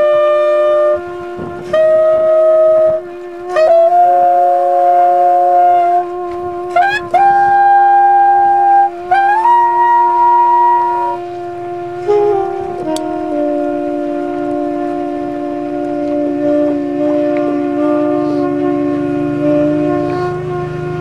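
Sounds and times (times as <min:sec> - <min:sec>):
saxophone long held notes: 0:00.0 - 0:21.0
trumpet long held notes: 0:00.0 - 0:21.0.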